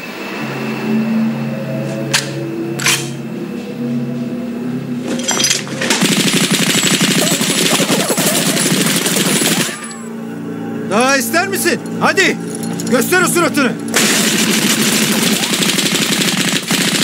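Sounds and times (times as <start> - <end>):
low film score notes: 0.0 - 16.9
bolt cutters snapping metal: 2.1 - 3.2
automatic gunfire: 6.0 - 9.9, 13.9 - 17.0.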